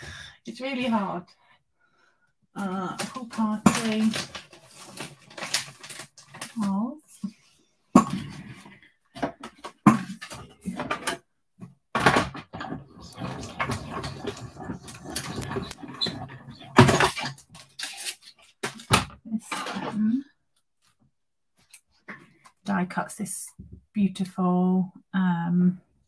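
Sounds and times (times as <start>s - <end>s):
paper rustling: 3.0s - 6.7s.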